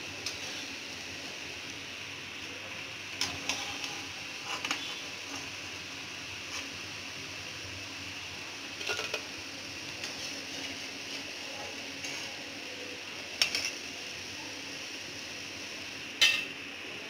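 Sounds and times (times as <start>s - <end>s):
food deep-frying in oil: 0.0s - 17.0s
metal spoon clinking pan: 16.2s - 16.5s.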